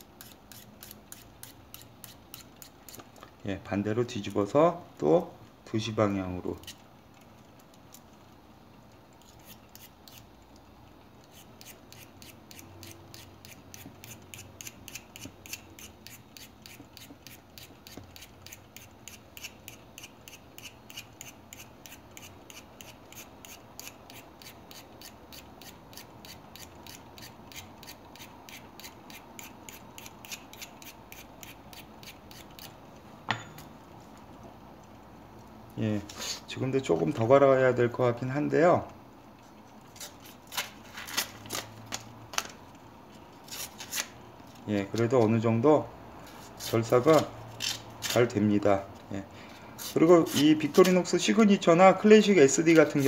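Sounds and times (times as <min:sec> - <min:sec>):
blade scraping sharpening stone: 0:00.2 - 0:03.0, 0:11.3 - 0:32.7.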